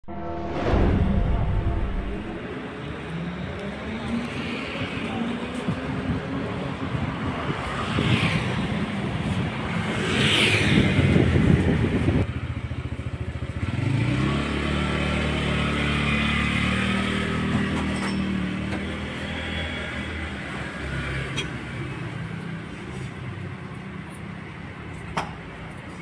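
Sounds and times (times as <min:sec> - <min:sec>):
street traffic: 0:00.0 - 0:26.0
motorbikes passing: 0:02.4 - 0:24.8.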